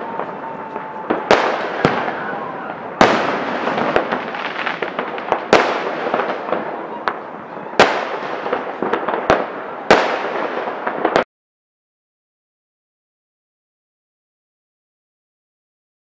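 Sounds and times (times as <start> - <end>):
fireworks bangs: 0.0 - 11.3
fireworks crackling: 0.0 - 11.3.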